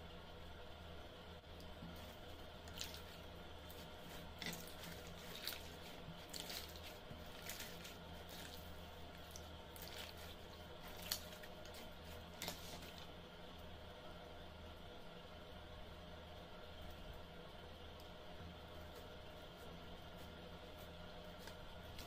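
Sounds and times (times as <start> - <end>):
faint low hum: 0.0 - 22.0
slime squelching and popping: 1.9 - 13.1.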